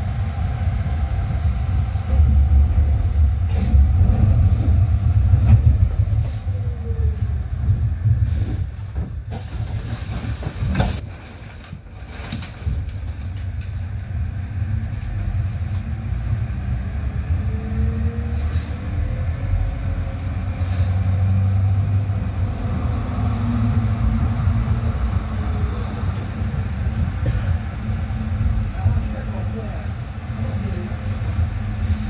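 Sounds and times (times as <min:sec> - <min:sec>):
tram wheels rumbling: 0:00.0 - 0:32.0
high wheel squeal: 0:22.6 - 0:26.9.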